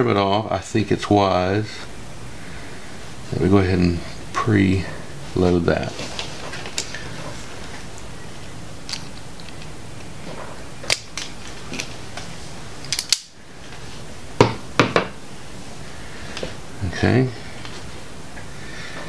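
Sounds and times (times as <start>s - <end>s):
wires being handled: 5.2s - 14.1s.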